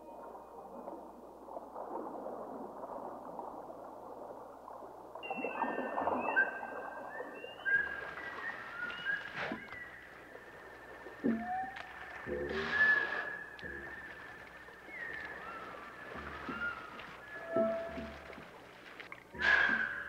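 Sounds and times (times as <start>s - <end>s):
underwater water noise: 0.0s - 20.0s
dolphin whistles: 5.2s - 18.4s, 19.4s - 20.0s.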